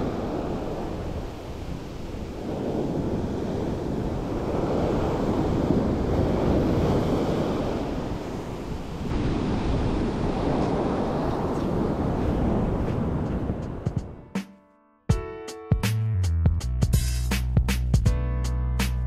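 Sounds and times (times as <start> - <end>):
sea surf washing in: 0.0 - 14.3
wind buffeting microphone: 0.0 - 14.4.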